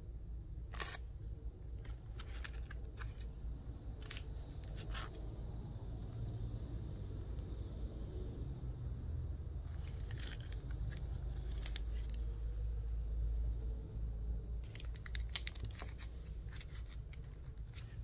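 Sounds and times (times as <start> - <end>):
steady low hum: 0.0 - 18.0
plastic sleeve crinkling: 9.7 - 12.3, 14.6 - 18.0.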